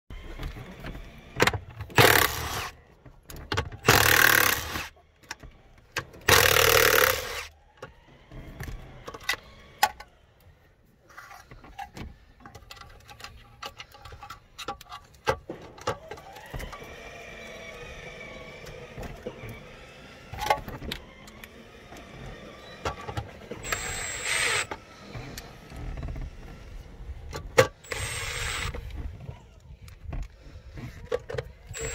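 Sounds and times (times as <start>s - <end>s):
clicks and rattles of parts: 0.2s - 17.0s, 20.3s - 31.9s
cordless impact tool bursts: 1.9s - 2.8s, 3.8s - 5.0s, 6.2s - 7.6s, 23.6s - 25.5s, 27.7s - 29.0s, 31.7s - 31.9s.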